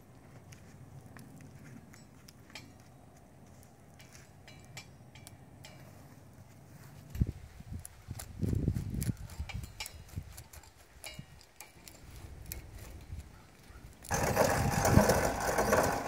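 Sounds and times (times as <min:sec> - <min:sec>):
light clicks and clinks: 0:01.2 - 0:03.0, 0:03.6 - 0:06.1, 0:09.0 - 0:14.1.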